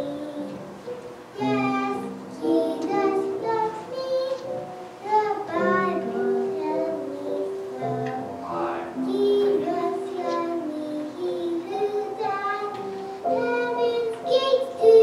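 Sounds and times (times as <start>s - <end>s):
girl singing into microphone: 0.0s - 8.2s, 9.0s - 15.0s.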